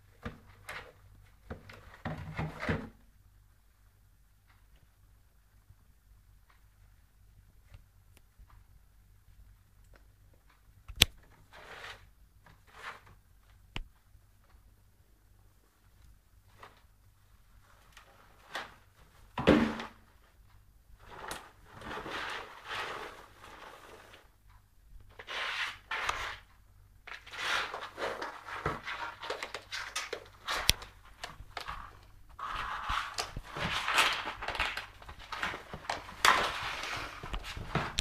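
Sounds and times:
cardboard scraping and rustling: 21.0s - 24.3s, 27.1s - 38.0s.

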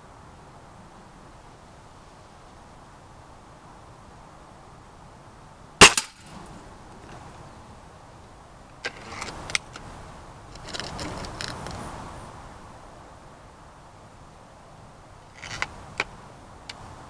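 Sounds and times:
air rifle shot: 5.8s - 6.3s.

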